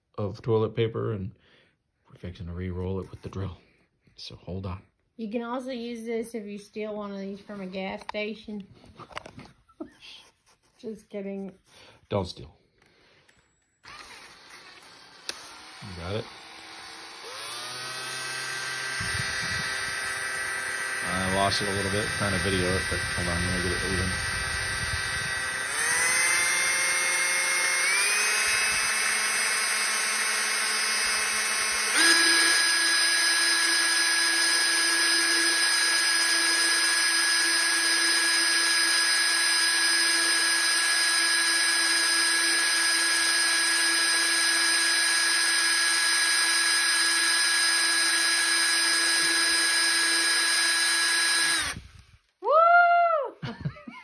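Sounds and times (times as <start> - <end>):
cordless drill whining: 12.7 - 52.4
person's voice: 21.0 - 24.2.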